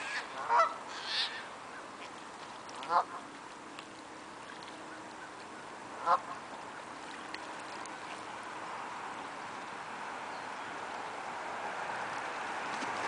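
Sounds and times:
goose honk: 0.0 - 1.5, 2.8 - 3.2, 6.0 - 6.4
steady background hiss: 0.0 - 13.0.

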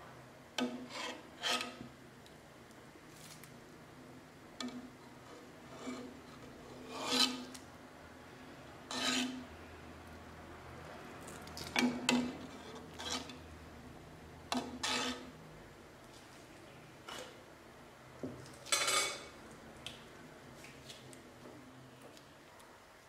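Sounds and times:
metal ladle scraping steel pot: 0.6 - 1.8, 4.7 - 7.6, 8.9 - 9.5, 11.8 - 13.4, 14.5 - 15.3, 17.0 - 17.4, 18.7 - 19.3.

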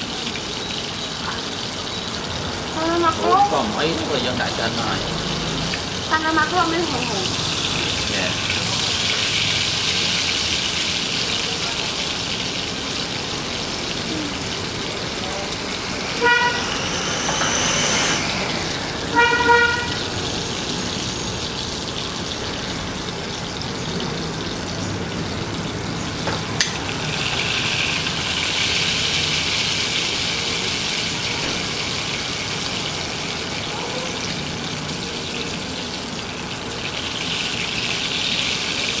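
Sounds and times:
steak sizzling in a frying pan: 0.0 - 18.1, 18.7 - 39.0
short horn-like beep: 15.8 - 21.4.

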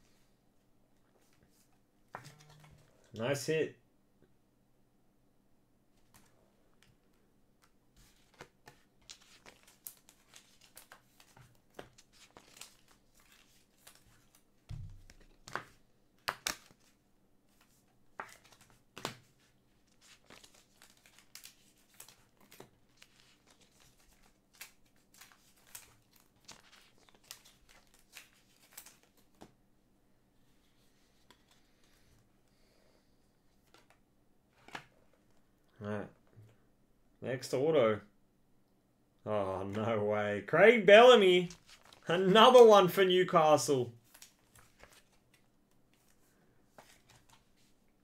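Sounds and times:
cards and plastic sleeves rustling: 1.2 - 3.4, 6.0 - 29.6, 30.4 - 32.4, 33.4 - 35.5, 40.8 - 47.9.

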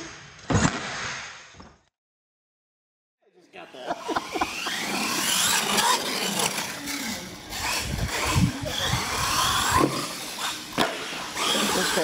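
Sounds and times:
toy truck motor whining: 4.0 - 12.0
tyres scrubbing on concrete: 4.1 - 12.0.

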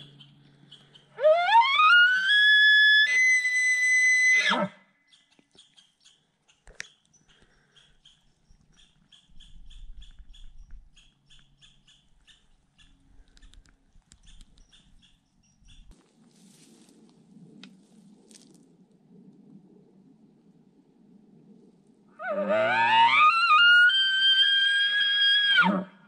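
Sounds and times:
small animal chirping: 5.1 - 15.9
wind rumble on microphone: 9.2 - 11.1, 15.6 - 22.2
soft rustling: 15.9 - 18.7.

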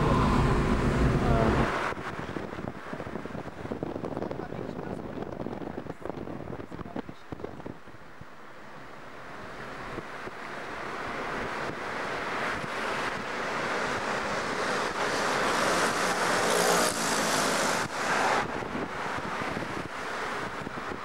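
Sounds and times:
road noise inside moving car: 0.0 - 21.0.

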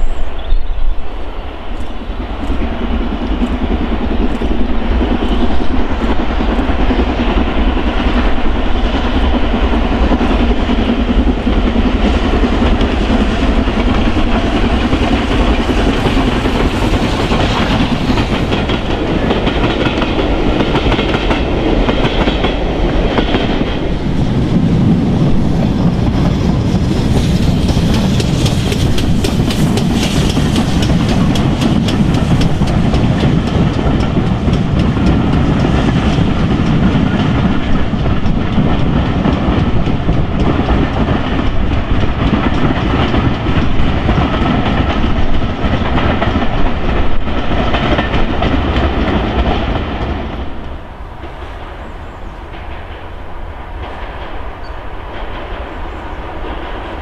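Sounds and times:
steam locomotive exhaust beats: 0.0 - 57.0
wheels clattering on rails: 9.2 - 51.7.

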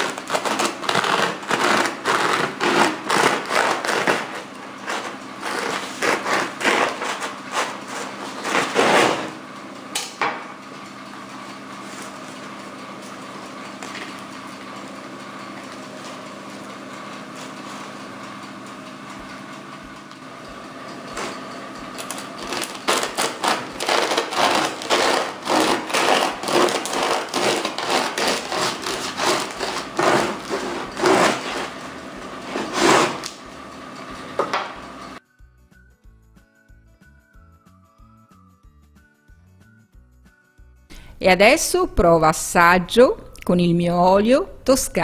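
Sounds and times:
bread knife sawing through crust: 0.0 - 9.3, 22.4 - 33.4.

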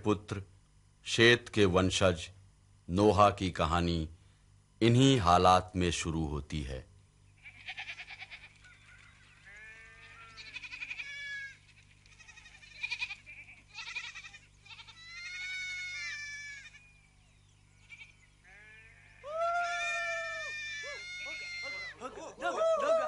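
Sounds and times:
goats and sheep bleating: 7.4 - 17.0, 17.8 - 22.5.

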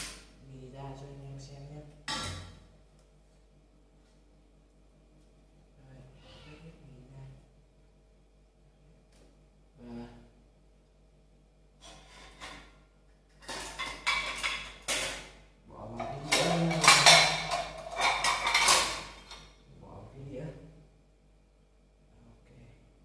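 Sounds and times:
dishes clattering: 2.1 - 2.7, 11.8 - 15.4, 16.0 - 19.6.

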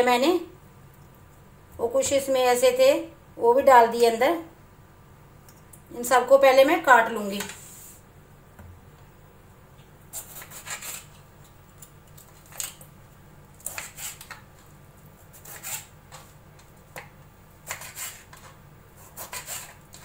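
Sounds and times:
knife slicing lemons: 10.2 - 11.1, 13.6 - 14.4, 15.3 - 16.2, 17.6 - 20.0.

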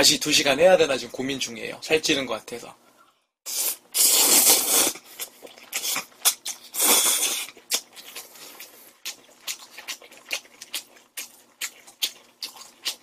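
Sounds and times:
person slurping noodles: 3.5 - 9.1
wet smacking chewing: 4.7 - 13.0.

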